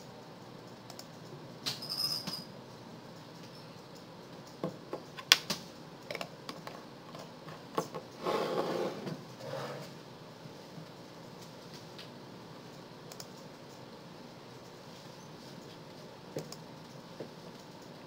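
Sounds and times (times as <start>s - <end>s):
keyboard and mouse clicks: 0.6s - 1.3s, 12.7s - 13.8s, 16.3s - 18.0s.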